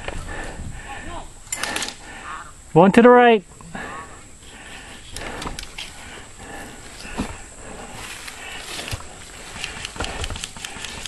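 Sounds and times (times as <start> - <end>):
heavy thumps: 5.2 - 8.0.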